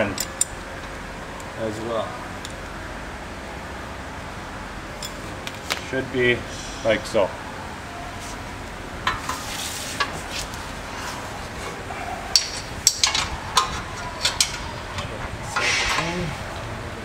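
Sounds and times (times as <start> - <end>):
metal bolt and washers clinking: 0.0 - 1.0, 12.3 - 16.3
metal scraping: 9.0 - 16.6.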